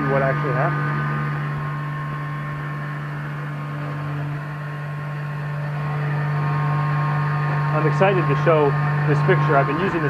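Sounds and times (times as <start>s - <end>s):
milling machine cutting metal: 0.0s - 10.0s.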